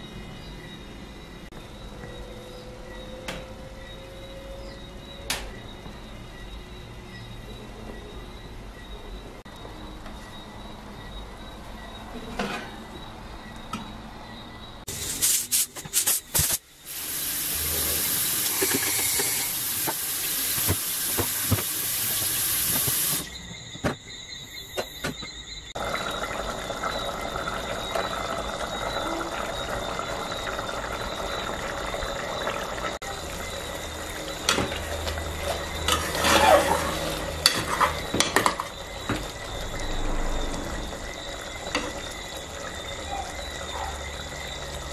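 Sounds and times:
water running into a sink: 0:16.9 - 0:23.3.

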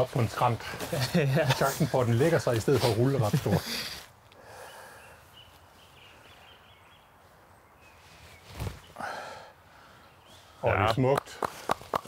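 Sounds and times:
faint high bird chirping: 0:04.6 - 0:09.0
brief rustle: 0:08.0 - 0:08.9.

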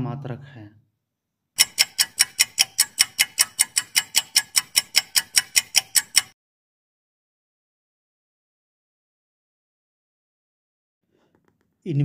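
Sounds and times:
rapid clock-like ticking: 0:01.6 - 0:06.4.

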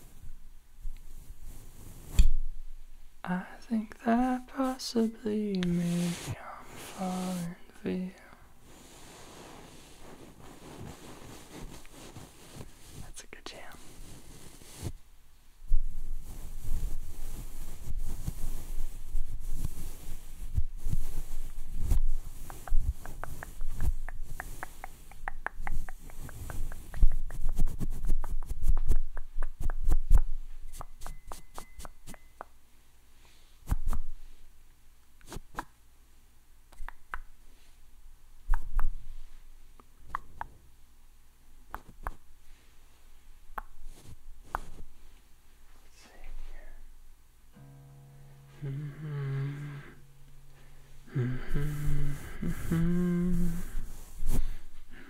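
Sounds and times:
microphone rubbing and knocking: 0:15.7 - 0:31.6.

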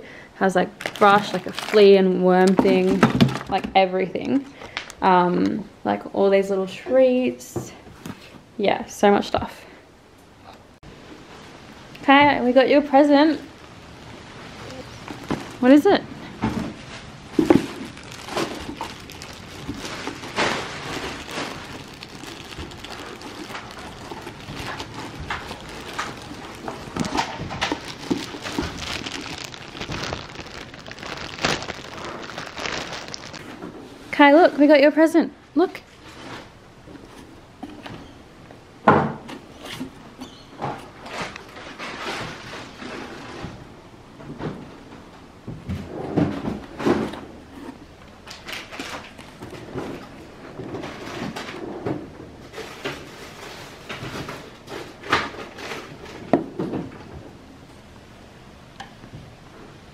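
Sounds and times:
plastic packaging crinkling: 0:00.7 - 0:03.6, 0:16.7 - 0:33.8, 0:48.2 - 0:51.6.

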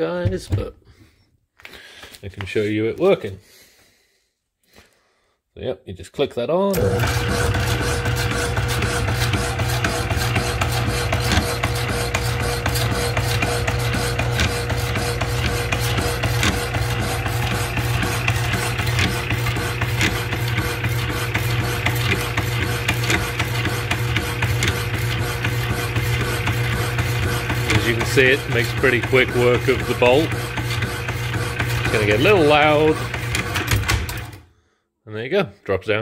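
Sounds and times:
electric motor hum: 0:06.8 - 0:34.4.

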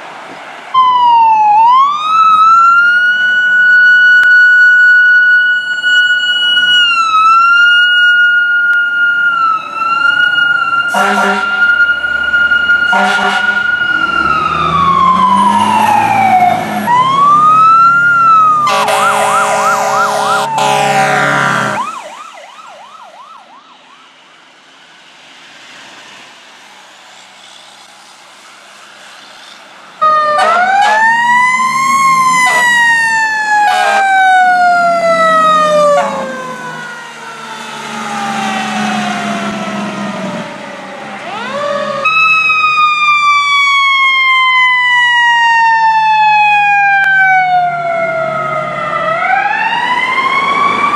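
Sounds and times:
siren yelping: 0:00.8 - 0:24.2, 0:30.0 - 0:50.9
siren wailing: 0:00.8 - 0:24.3, 0:29.4 - 0:50.9
distant yelping siren: 0:00.8 - 0:24.4, 0:26.8 - 0:50.9
air horn blast: 0:10.9 - 0:11.6, 0:12.9 - 0:13.7, 0:18.6 - 0:21.8, 0:30.3 - 0:31.2, 0:32.4 - 0:32.8, 0:33.7 - 0:34.1, 0:35.8 - 0:36.3.

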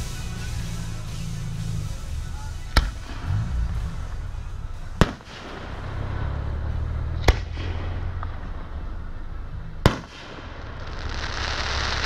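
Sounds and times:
low steady rumble: 0:00.0 - 0:12.0
firework bang: 0:05.0 - 0:06.1, 0:09.8 - 0:12.0.

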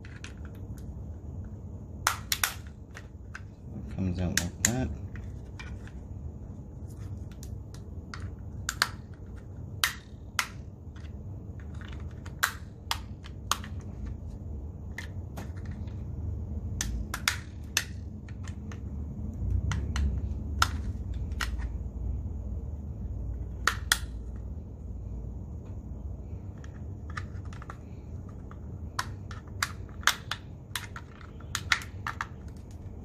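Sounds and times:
plastic parts knocking: 0:07.2 - 0:16.0, 0:16.7 - 0:21.8, 0:26.5 - 0:33.0.

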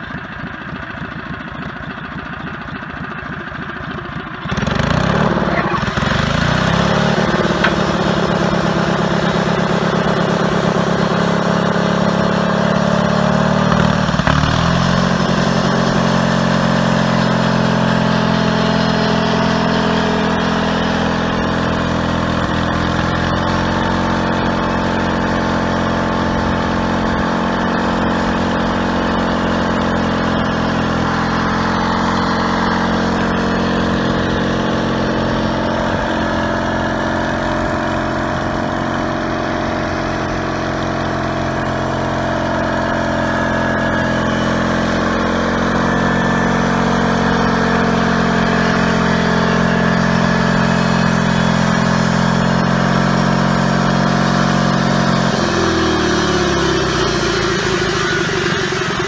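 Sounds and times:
engine running: 0:00.0 - 0:59.0
band blade sawing log: 0:04.6 - 0:09.6.

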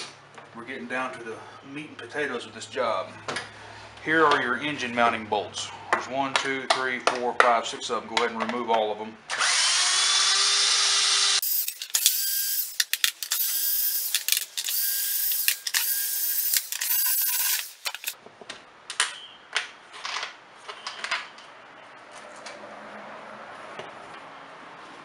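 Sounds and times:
cordless drill running: 0:09.3 - 0:18.2.

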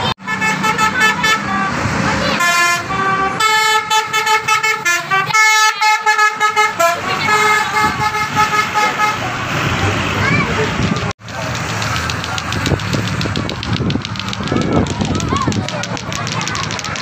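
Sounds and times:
crowd noise: 0:00.0 - 0:17.0
road noise: 0:00.0 - 0:17.0
musical air horn playing tune: 0:00.2 - 0:09.6.

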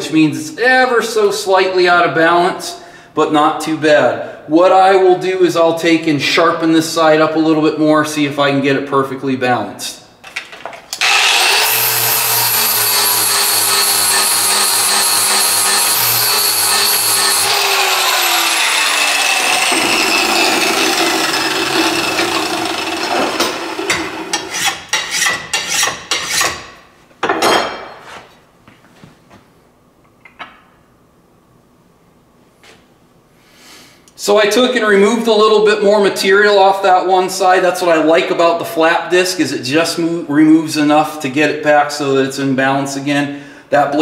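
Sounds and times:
grinder winding down whine: 0:11.0 - 0:24.4
angle grinder grinding metal: 0:11.0 - 0:25.7.

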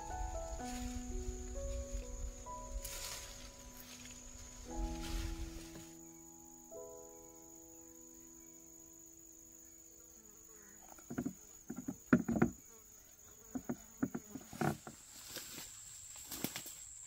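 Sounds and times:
footsteps in undergrowth: 0:00.0 - 0:06.2, 0:13.7 - 0:17.0
leaves and stems rustling: 0:00.0 - 0:06.4, 0:10.5 - 0:17.0
high-pitched insect buzz: 0:00.0 - 0:17.0.

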